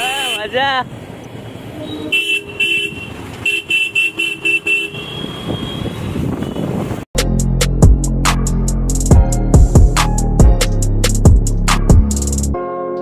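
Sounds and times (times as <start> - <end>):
vehicle horns honking: 0.0 - 0.7, 1.6 - 7.0
traffic hum: 0.0 - 7.1.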